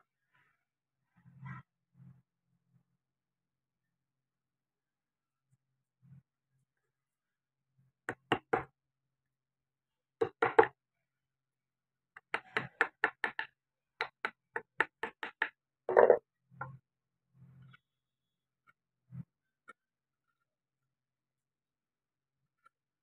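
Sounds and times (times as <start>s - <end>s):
chisel tapping into wood: 12.2s - 16.2s.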